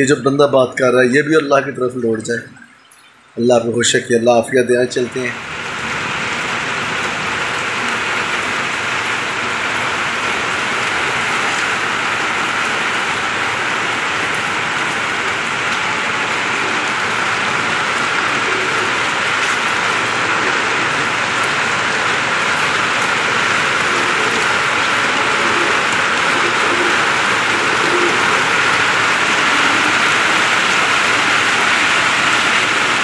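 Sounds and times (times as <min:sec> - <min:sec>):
rain on concrete rooftop: 0:00.8 - 0:33.0.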